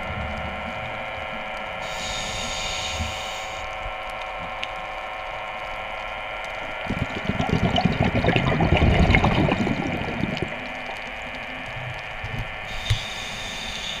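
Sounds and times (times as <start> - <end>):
electric motor whining underwater: 0.0 - 14.0
churning water rush: 6.8 - 11.7.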